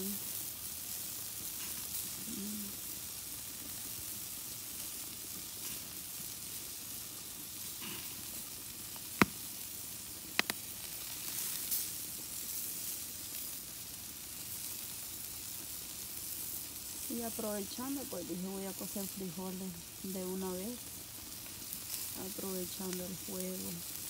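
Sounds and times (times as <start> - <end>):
sausages sizzling on a grill: 0.0 - 24.0
sharp fat pops: 9.0 - 9.7, 10.3 - 10.9.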